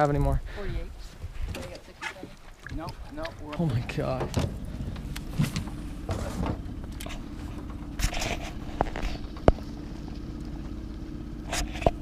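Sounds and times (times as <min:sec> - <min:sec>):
steady low hum: 0:02.8 - 0:12.0.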